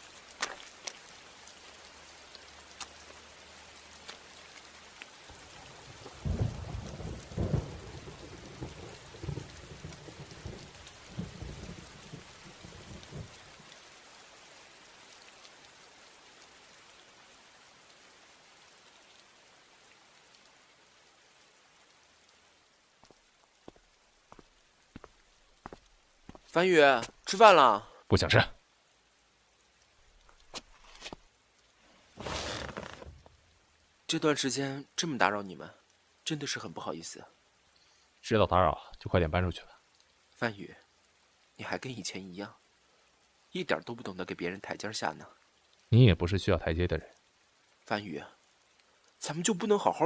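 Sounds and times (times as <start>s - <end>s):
raindrop ticks: 0.0s - 28.7s, 29.5s - 50.0s
steady rain hiss: 0.0s - 50.0s
thunder rolling: 6.2s - 12.2s.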